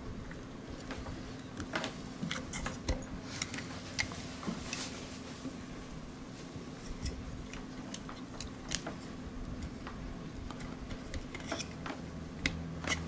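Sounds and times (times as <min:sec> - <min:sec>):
hands clicking and tapping parts: 0:07.0 - 0:13.0.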